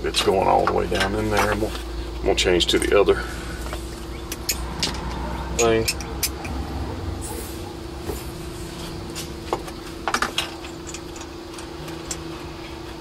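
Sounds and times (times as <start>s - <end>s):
faint steady hum: 0.0s - 13.0s
hand tool clinking against metal: 4.3s - 6.6s.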